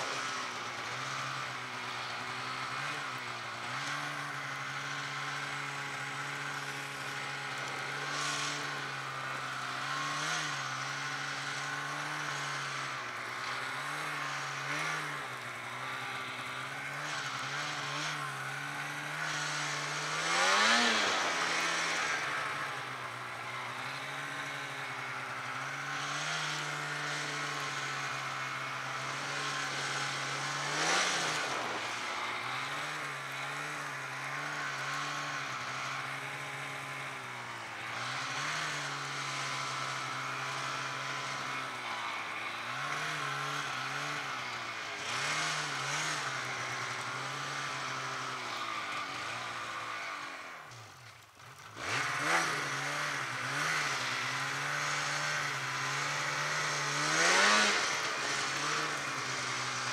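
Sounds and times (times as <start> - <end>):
snowmobile engine running: 0.0 - 59.9.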